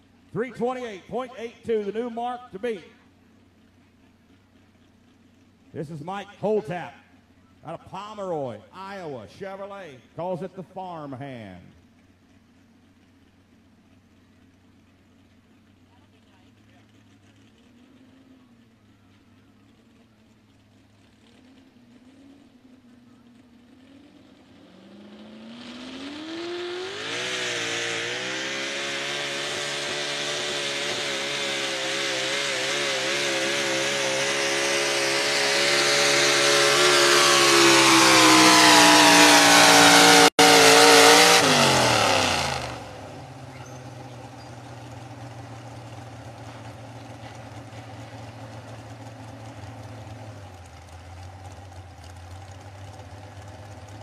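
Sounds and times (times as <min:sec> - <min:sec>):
engine idling: 0:00.0 - 0:25.2, 0:28.6 - 0:54.0
truck engine revving: 0:19.5 - 0:54.0.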